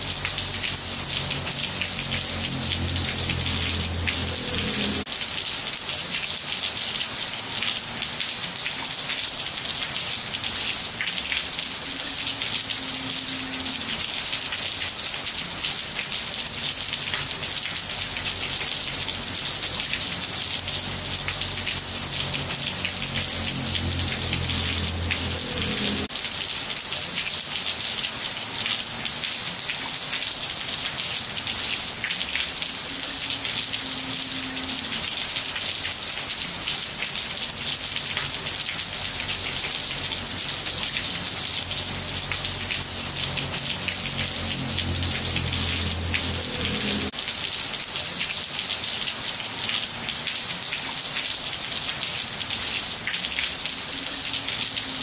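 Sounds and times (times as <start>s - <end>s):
rain splashing on tiled floor: 0.0s - 55.0s.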